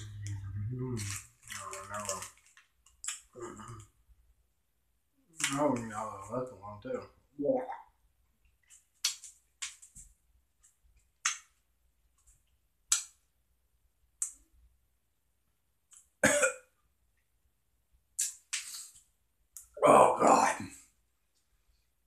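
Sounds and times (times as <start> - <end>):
short throat cough: 16.2 - 16.7.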